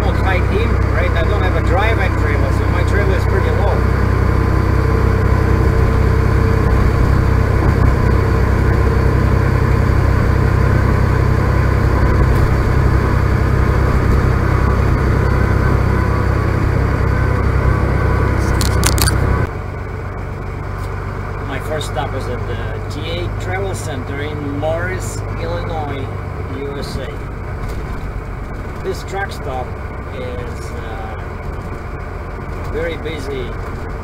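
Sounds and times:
diesel engine low hum: 0.0s - 34.0s
tyre and road noise: 18.3s - 19.5s
short clicks: 18.4s - 19.2s.

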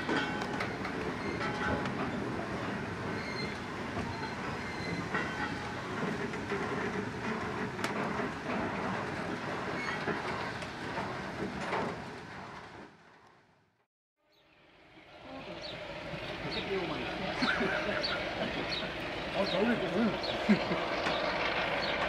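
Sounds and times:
train wheels rumbling and clattering: 0.0s - 13.7s, 15.6s - 22.0s
wheel squeals: 0.1s - 1.8s, 3.1s - 6.8s, 9.7s - 10.6s.

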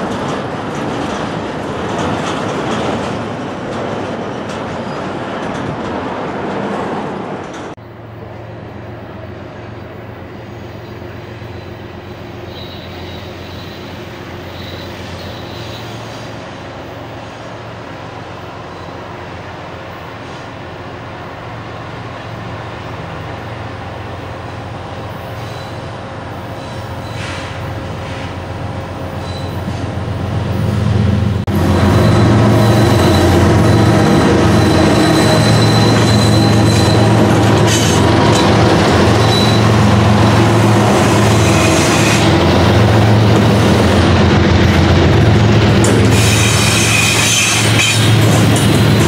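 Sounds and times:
diesel locomotive engines droning: 0.0s - 49.0s
high wheel squeal: 12.4s - 16.3s, 25.2s - 25.9s, 26.5s - 28.4s, 29.0s - 29.9s, 31.7s - 42.5s, 46.0s - 49.0s.

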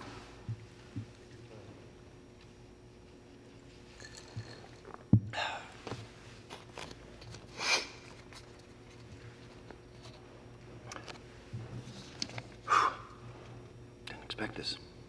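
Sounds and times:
man breathing: 12.7s - 13.2s.

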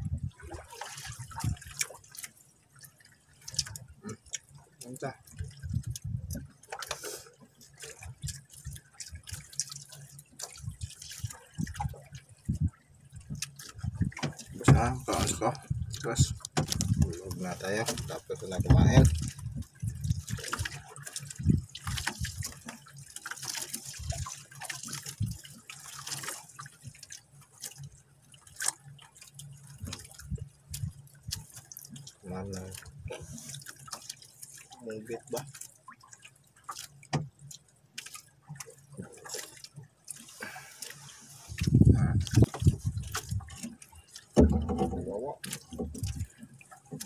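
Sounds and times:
water splashing against boat hull: 0.0s - 47.0s
drips: 0.4s - 47.0s
knocks on hull: 14.1s - 15.3s, 16.5s - 17.2s, 17.9s - 19.3s, 44.3s - 45.1s.

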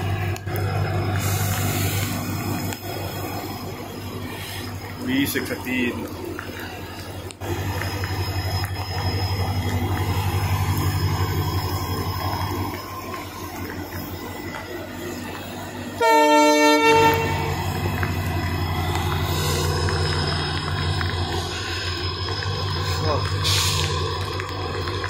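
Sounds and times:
locomotive engine humming: 0.0s - 25.0s
train horn blast: 16.0s - 17.7s.

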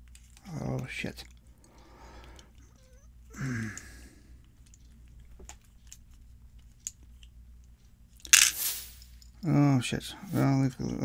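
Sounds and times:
vocal groan: 3.3s - 4.0s.

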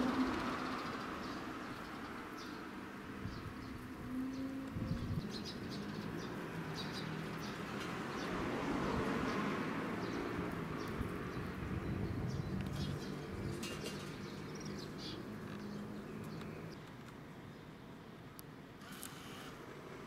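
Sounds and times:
birds chirping: 0.0s - 8.4s, 9.2s - 18.1s
outdoor ambience: 0.0s - 20.0s.

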